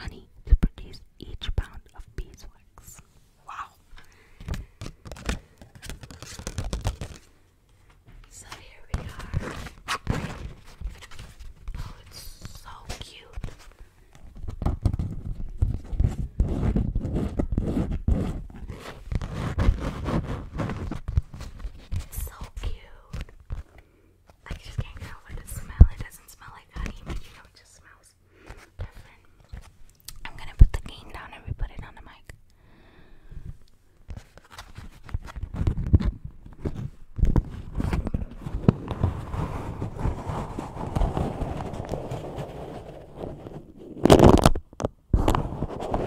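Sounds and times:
fingernails tapping wax wrap: 4.4 - 7.3
paper crinkling and scratching: 4.5 - 7.4, 8.5 - 22.4, 34.1 - 44.6.

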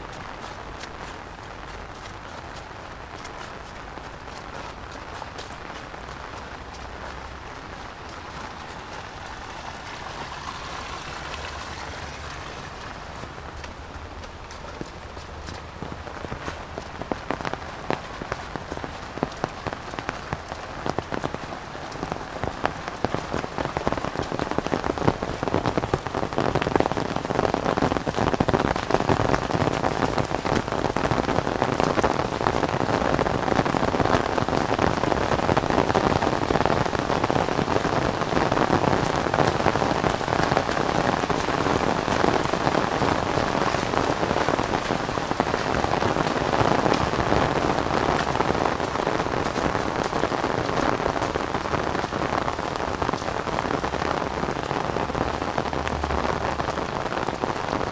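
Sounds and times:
heavy rain on an umbrella: 0.0 - 57.9.

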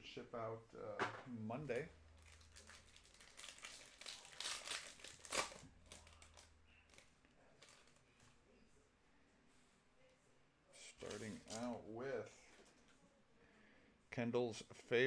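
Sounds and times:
foil pack crinkling and ripping: 2.2 - 8.0.

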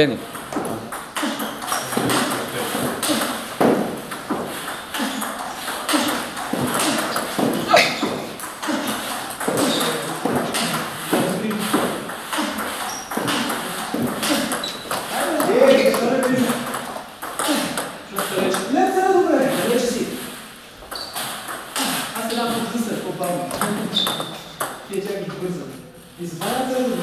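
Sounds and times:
table tennis ball pings: 0.3 - 18.6, 20.8 - 22.3, 23.5 - 24.9.

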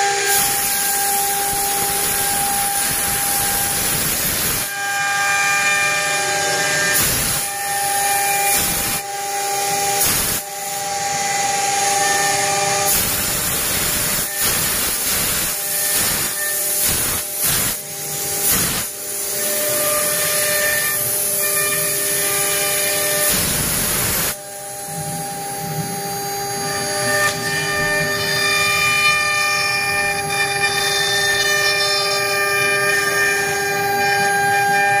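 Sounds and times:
hiss of bit cutting wood: 0.0 - 35.0
router spindle whining: 24.4 - 35.0.

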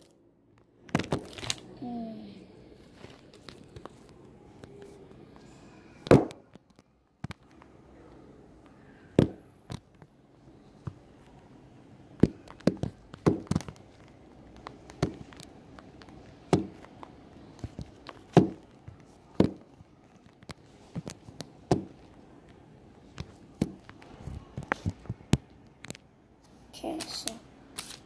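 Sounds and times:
plastic packaging clicks and taps: 0.5 - 1.6, 12.2 - 22.2.

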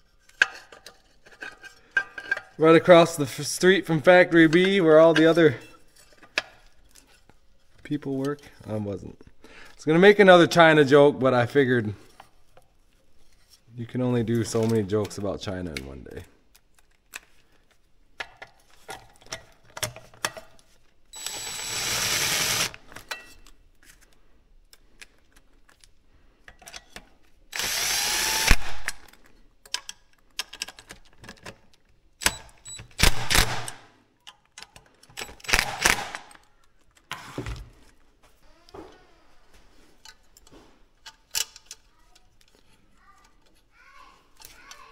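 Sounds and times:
clicks and parts handled: 0.1 - 2.6, 14.4 - 21.0, 22.7 - 27.5, 28.8 - 33.0, 33.7 - 37.2, 39.7 - 43.7, 44.3 - 44.9
handheld power tool running: 21.2 - 22.8, 27.5 - 29.0.

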